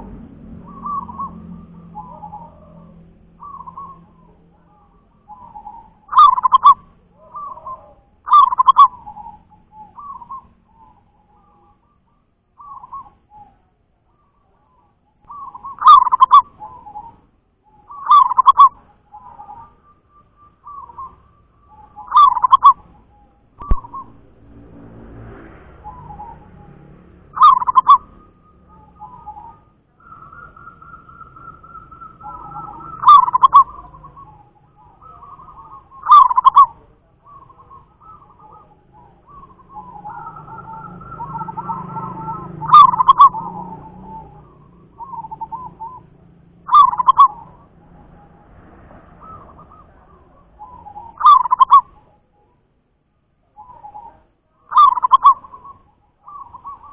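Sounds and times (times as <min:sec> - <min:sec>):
dove cooing: 0:00.0 - 0:24.4, 0:25.8 - 0:52.6, 0:53.5 - 0:56.9.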